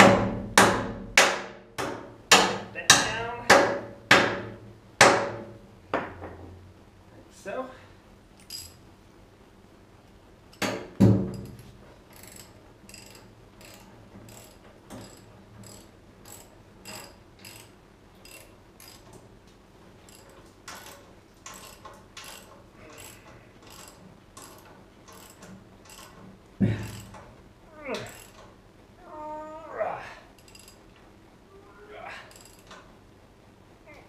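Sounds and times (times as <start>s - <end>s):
sharp metal knocks: 0.0s - 6.4s, 10.6s - 11.6s
socket ratchet clicking: 12.1s - 19.2s, 20.1s - 26.2s, 30.4s - 30.8s.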